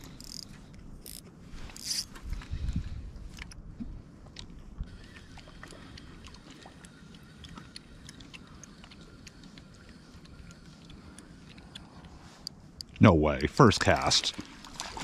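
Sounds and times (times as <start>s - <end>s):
fishing reel clicking: 0.0s - 1.2s, 1.8s - 2.1s
wind rumble on microphone: 2.1s - 5.0s.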